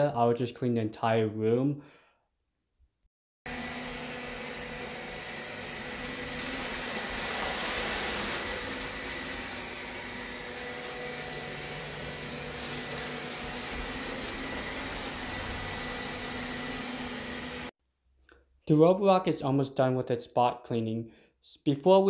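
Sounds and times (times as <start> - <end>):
robot vacuum motor humming: 3.5 - 17.7.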